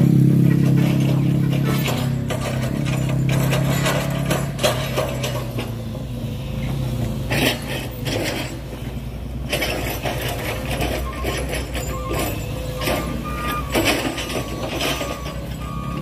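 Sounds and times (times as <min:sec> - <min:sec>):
truck diesel engine running: 0:00.0 - 0:16.0
clatters and knocks: 0:00.5 - 0:05.9.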